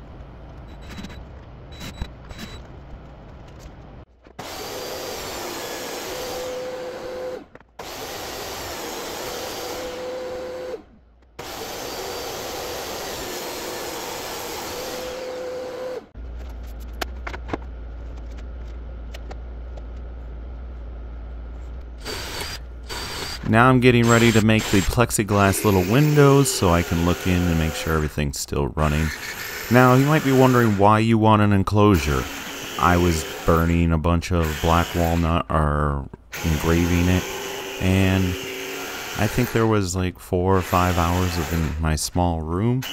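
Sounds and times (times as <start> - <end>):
table saw cutting plywood: 4.4 - 10.8, 11.4 - 16.1, 22.0 - 28.1, 28.8 - 35.4, 36.4 - 39.8, 40.6 - 42.0
steady whine: 15.1 - 42.9.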